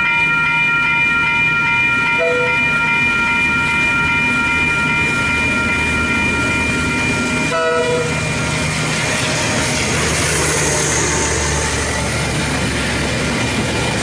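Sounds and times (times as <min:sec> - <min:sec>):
level crossing bell ringing: 0:00.0 - 0:08.6
locomotive rumbling past: 0:01.1 - 0:14.0
train horn blast: 0:02.2 - 0:02.6, 0:07.4 - 0:08.4.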